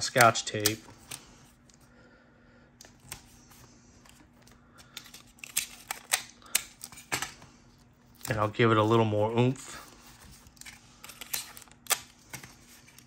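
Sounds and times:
tape tearing and pressing clicks: 0:00.0 - 0:01.2, 0:04.8 - 0:07.3.

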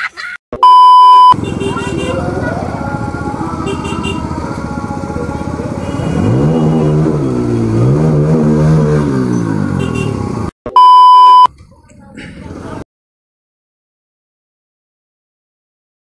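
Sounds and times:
motorcycle engine revving: 0:01.3 - 0:10.5.

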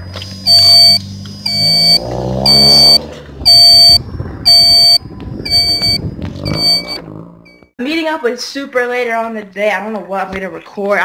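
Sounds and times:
loud warning beeps: 0:00.4 - 0:07.6.

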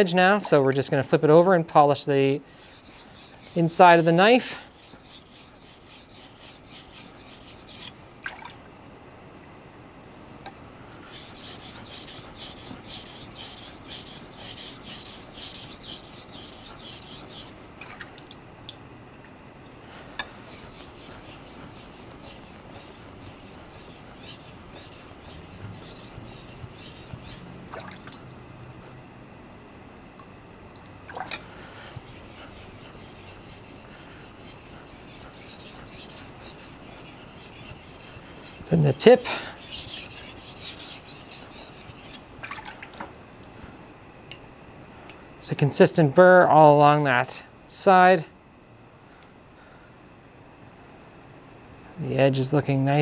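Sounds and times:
knife scraping on whetstone: 0:02.5 - 0:07.9, 0:11.1 - 0:17.5, 0:20.2 - 0:27.4, 0:31.8 - 0:42.2.

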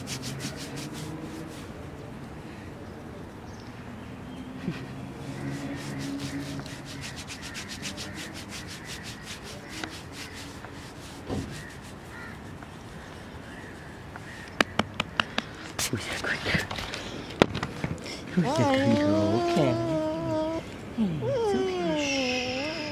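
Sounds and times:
hand scratching dog fur: 0:00.0 - 0:01.7, 0:05.2 - 0:12.6.

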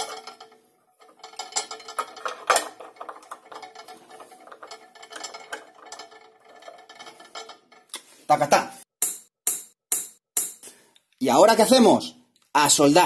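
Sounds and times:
metal tools clicking and clinking: 0:00.0 - 0:08.1.

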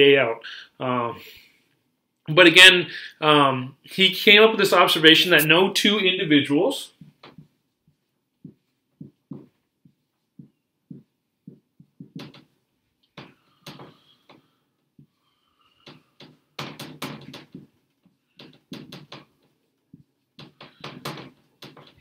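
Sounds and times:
irregular taps and knocks: 0:06.9 - 0:22.0.

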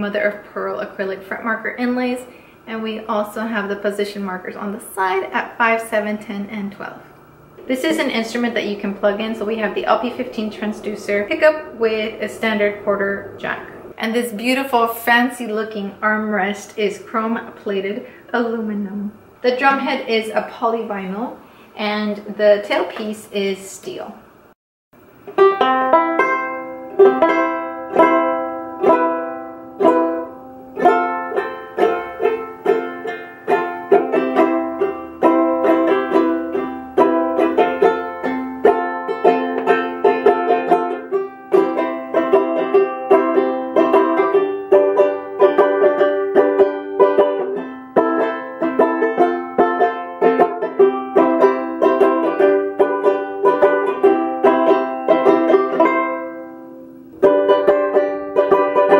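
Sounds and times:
banjo ukulele playing: 0:07.6 - 0:14.0, 0:25.2 - 0:58.9.

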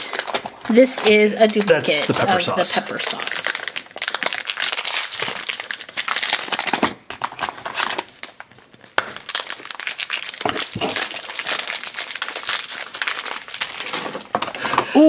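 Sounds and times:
foil wrappers crinkling: 0:00.0 - 0:14.8.

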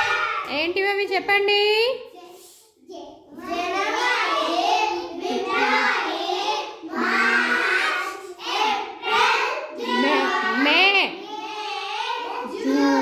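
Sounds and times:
young children chanting: 0:00.0 - 0:00.5, 0:03.3 - 0:10.6, 0:11.2 - 0:13.0.

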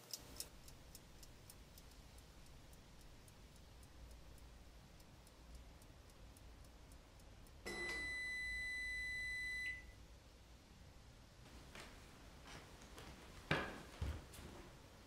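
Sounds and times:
faint regular ticking: 0:00.0 - 0:11.4
low steady hum: 0:00.0 - 0:15.0.

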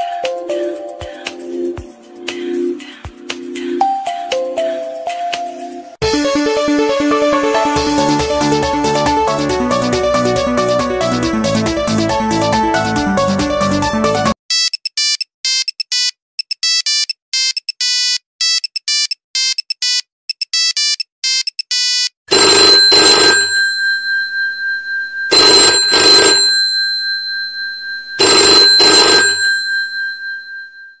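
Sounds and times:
rotary telephone bell ringing: 0:22.3 - 0:31.0
electronic beep ringtone: 0:28.2 - 0:29.4.

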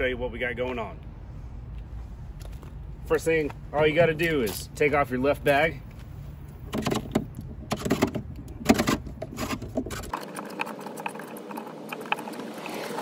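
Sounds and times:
plastic and metal clicks and knocks: 0:06.7 - 0:11.1.

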